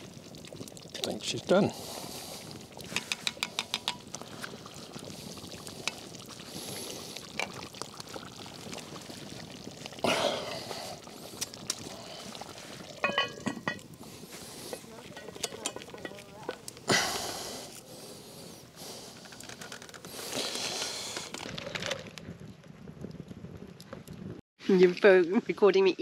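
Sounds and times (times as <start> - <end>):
thick curry pouring: 1.7 - 16.8
spoon scraping pot: 2.9 - 4.0, 14.7 - 16.3.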